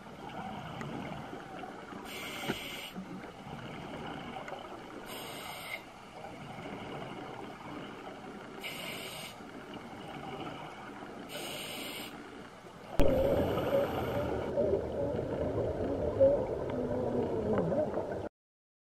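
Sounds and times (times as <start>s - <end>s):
hissing breaths through a regulator: 2.0s - 3.1s, 5.0s - 6.0s, 8.6s - 9.6s, 10.4s - 12.3s.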